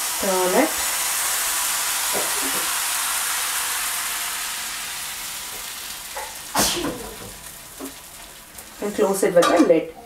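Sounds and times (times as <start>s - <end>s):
batter sizzling in a pan: 0.0s - 9.4s.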